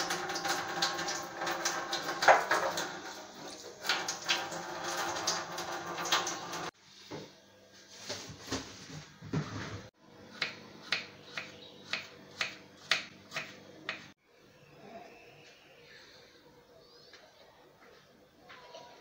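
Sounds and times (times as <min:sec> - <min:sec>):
kitchen handling sounds: 0:08.0 - 0:09.9
knife chopping on wooden board: 0:10.4 - 0:14.1.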